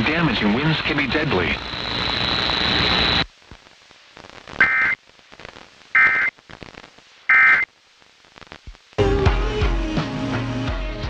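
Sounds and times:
buzzy digital data bursts: 0.0s - 3.3s, 4.2s - 7.7s
faint static: 0.0s - 11.0s.

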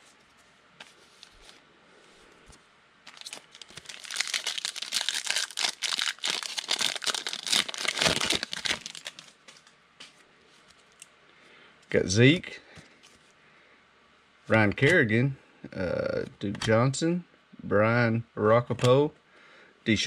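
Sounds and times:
foil wrapper tearing and crinkling: 3.1s - 9.4s.

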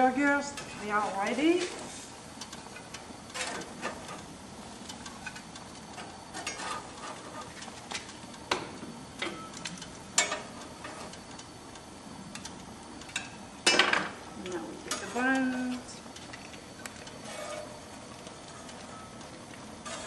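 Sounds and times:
metal spatula scraping grill grates: 6.0s - 7.7s, 17.2s - 17.8s, 19.8s - 20.0s.

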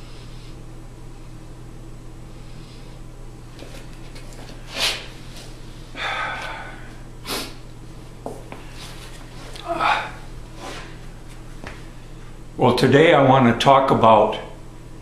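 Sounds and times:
steady low hum: 0.0s - 15.0s
man sniffing: 4.7s - 5.1s, 5.9s - 7.6s
man breathing: 5.8s - 7.6s, 9.5s - 11.0s.

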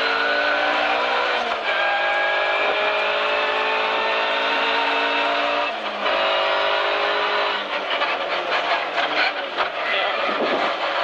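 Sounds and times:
car engine revving hard: 0.0s - 11.0s
knocks and rattles from road: 7.3s - 11.0s.

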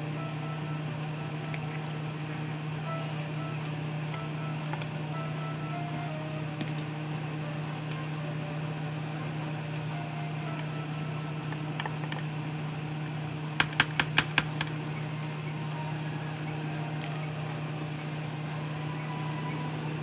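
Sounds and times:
steady low hum: 0.0s - 20.0s
metal spoon tapping plastic bowl: 13.6s - 14.7s.

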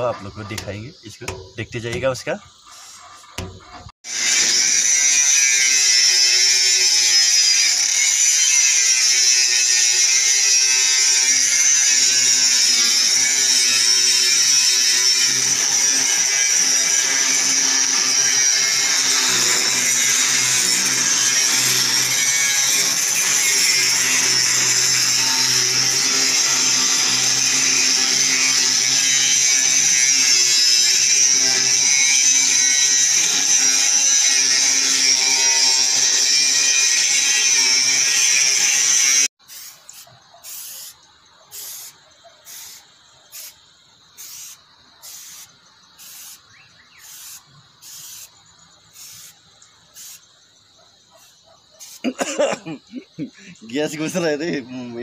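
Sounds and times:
angle grinder grinding steel: 0.0s - 39.3s
short spray hisses: 39.5s - 41.0s, 41.6s - 43.6s, 44.2s - 46.4s, 47.0s - 48.3s, 49.0s - 49.4s, 50.0s - 50.2s.

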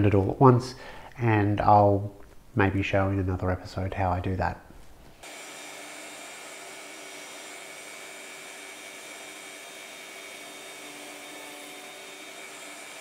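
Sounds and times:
router whining through wood: 5.2s - 13.0s.

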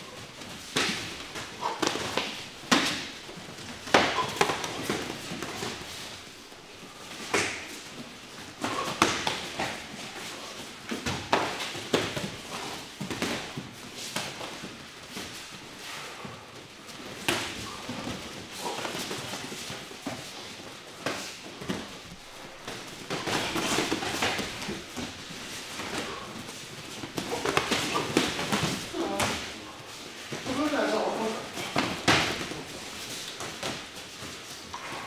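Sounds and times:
feet shuffling on mats: 0.0s - 35.0s.

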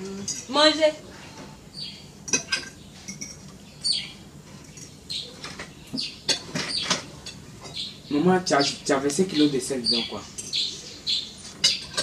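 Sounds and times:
forks clinking on plates: 2.3s - 3.5s, 11.6s - 12.0s.

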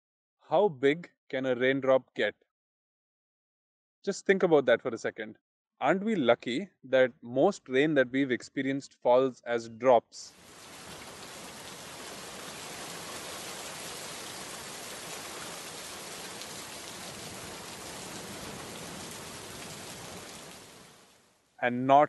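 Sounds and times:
steady rain falling: 10.4s - 21.4s.

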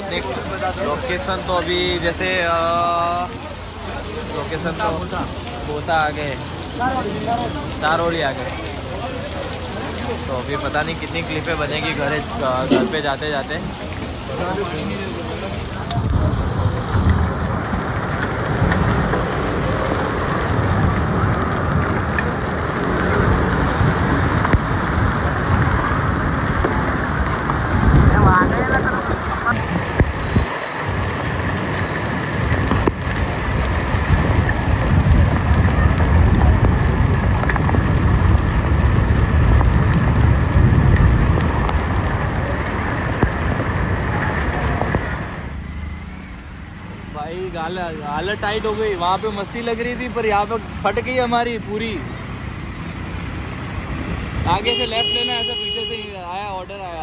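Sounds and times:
wind rumble on microphone: 0.0s - 49.4s
heavy rain: 0.0s - 57.0s
vehicles on road: 0.0s - 57.0s
steady low rumble: 23.8s - 54.6s.

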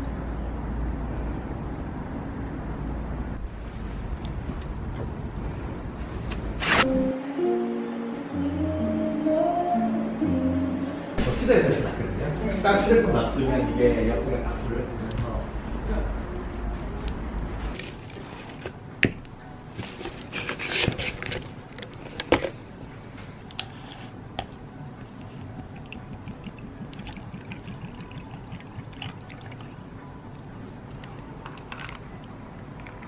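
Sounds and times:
milk pouring over ice: 25.8s - 29.8s.

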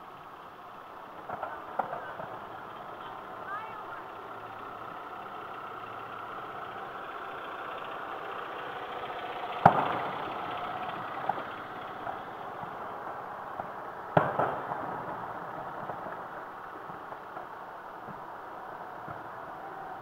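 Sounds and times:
faint fireworks pops: 1.2s - 2.4s, 9.6s - 10.1s, 12.0s - 18.4s, 19.0s - 19.6s
fireworks boom: 9.6s - 10.2s, 13.6s - 18.3s.

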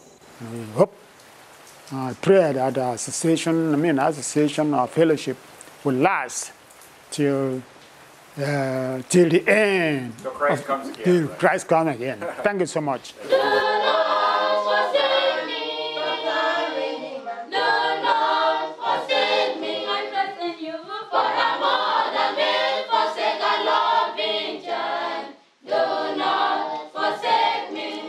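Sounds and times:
choir singing unaccompanied: 13.1s - 28.0s.

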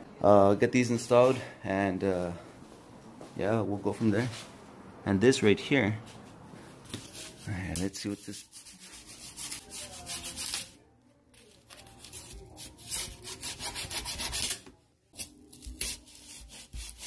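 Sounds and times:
knife slitting packing tape: 11.6s - 17.0s
knife scraping cardboard box: 11.8s - 14.6s, 15.2s - 17.0s.

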